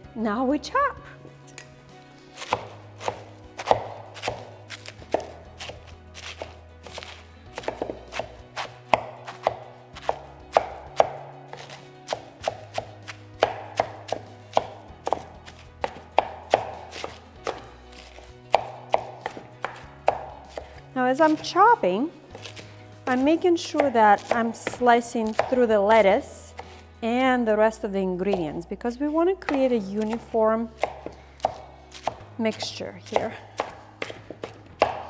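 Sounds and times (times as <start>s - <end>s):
soft background music: 0.0s - 35.0s
blade chopping into wooden bowl: 2.4s - 21.5s, 22.3s - 25.6s, 29.4s - 35.0s.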